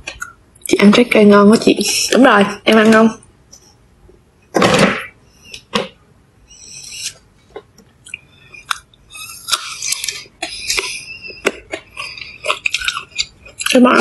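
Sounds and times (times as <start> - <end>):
person chewing fruit: 0.0 - 0.5, 6.7 - 14.0.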